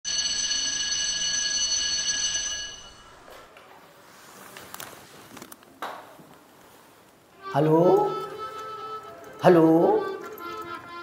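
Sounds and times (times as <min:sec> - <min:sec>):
telephone ringing: 0:00.1 - 0:03.5.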